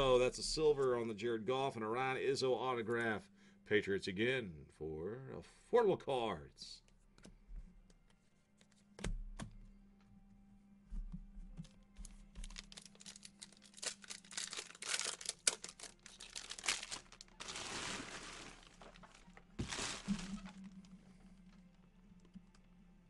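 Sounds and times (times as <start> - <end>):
plastic wrapper crinkling and tearing: 12.4 - 21.7.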